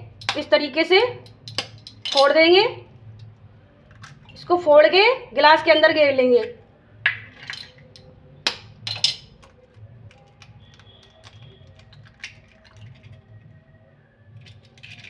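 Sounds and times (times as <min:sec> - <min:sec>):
eggs cracking against metal cup: 0:01.2 - 0:02.4, 0:03.2 - 0:04.5, 0:06.4 - 0:13.4, 0:14.4 - 0:15.0.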